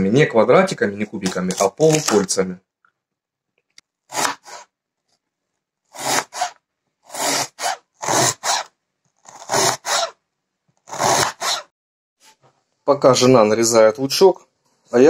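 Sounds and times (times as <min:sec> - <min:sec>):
knife slicing onion on cutting board: 0:04.1 - 0:04.7.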